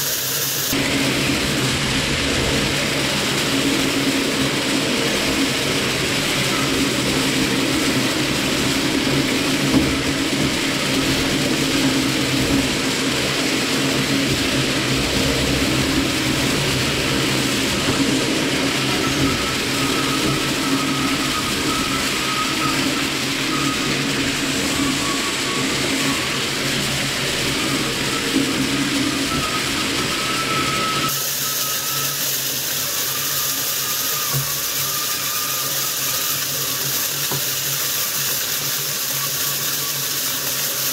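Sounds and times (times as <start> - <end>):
shredder motor humming: 0.0 - 40.9.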